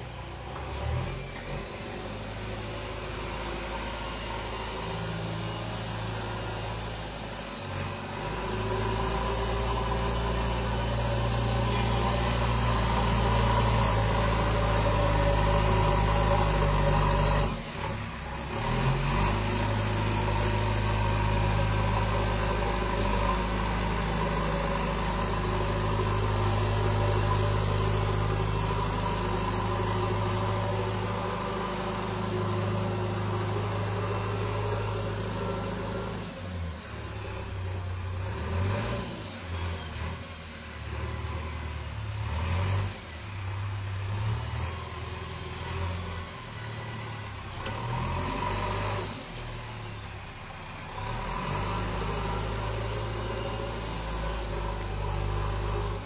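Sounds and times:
diesel engine idling: 0.0 - 56.0.

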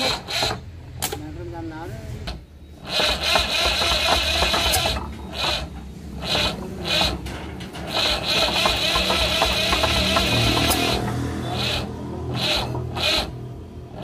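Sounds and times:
diesel engine starter cranking: 2.8 - 13.4.

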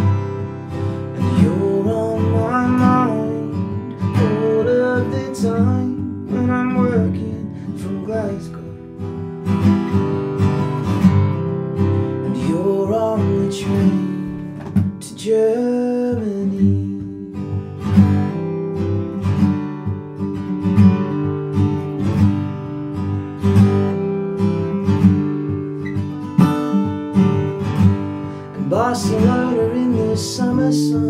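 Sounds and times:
man singing: 0.0 - 9.0, 12.2 - 17.7, 28.3 - 31.0
acoustic guitar strumming: 0.0 - 31.0.

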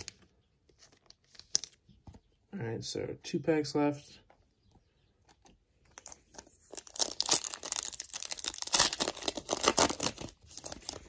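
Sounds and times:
card pack wrapper crinkling and tearing: 5.9 - 11.0.

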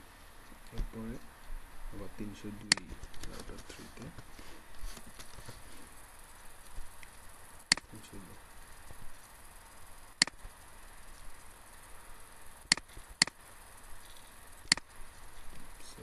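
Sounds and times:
computer mouse clicks: 2.7 - 3.4, 12.7 - 13.4, 14.7 - 14.9.

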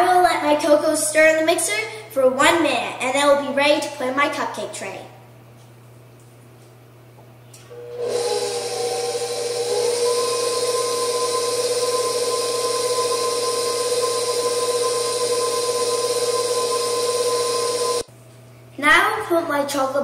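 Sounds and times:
stand mixer motor whine: 7.6 - 18.1.

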